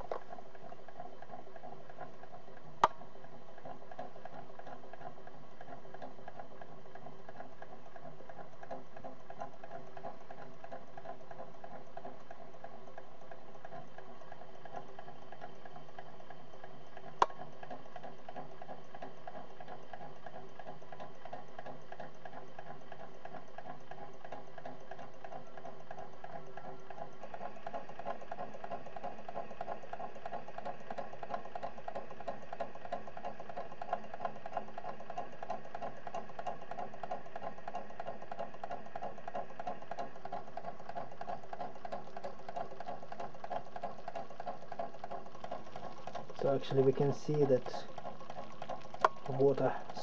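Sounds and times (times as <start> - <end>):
crackling and bubbling hiss: 41.8 - 50.0.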